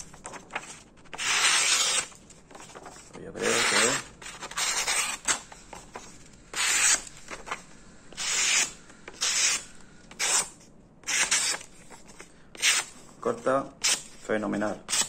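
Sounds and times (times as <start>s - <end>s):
knife slicing paper: 0.3s - 5.4s, 8.2s - 10.5s, 11.1s - 11.7s.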